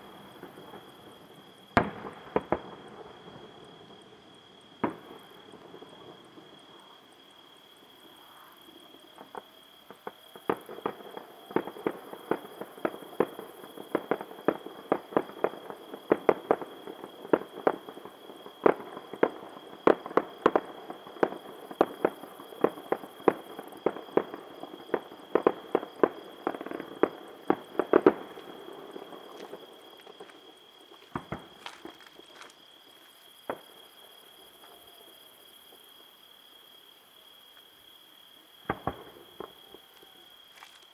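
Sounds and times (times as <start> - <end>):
distant fireworks bangs: 0.0 - 4.1, 4.8 - 6.6, 9.2 - 33.9, 38.6 - 40.2.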